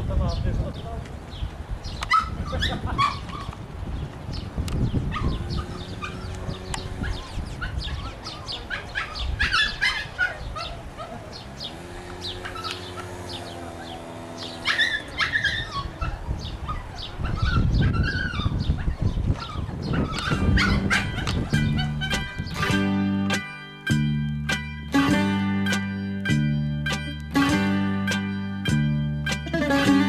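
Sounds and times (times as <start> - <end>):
dog barking and yelping: 2.0 - 3.6, 5.0 - 11.5, 12.4 - 22.8.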